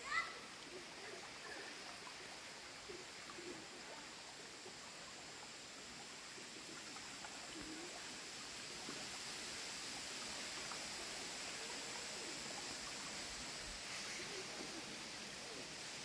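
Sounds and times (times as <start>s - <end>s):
stream trickling over stones: 0.0s - 16.0s.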